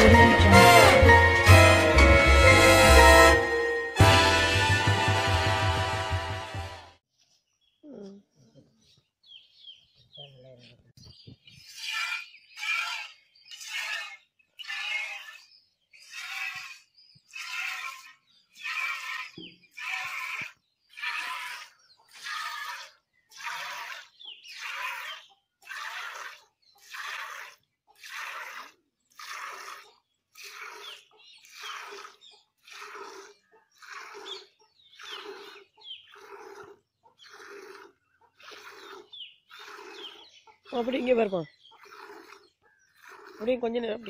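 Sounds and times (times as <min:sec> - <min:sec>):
milk squirting into a pail: 0:43.0 - 0:43.5.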